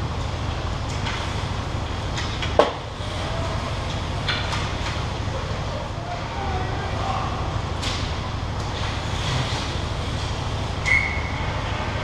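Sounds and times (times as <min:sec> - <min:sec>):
steady low rumble: 0:00.0 - 0:10.8
clicks of sticks and skates: 0:07.8 - 0:11.3.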